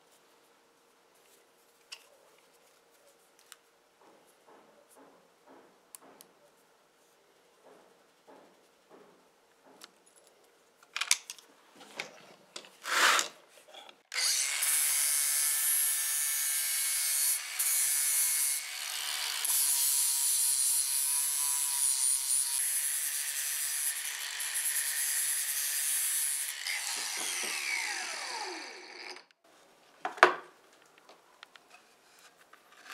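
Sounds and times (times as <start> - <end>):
angle grinder grinding steel: 14.2 - 29.3.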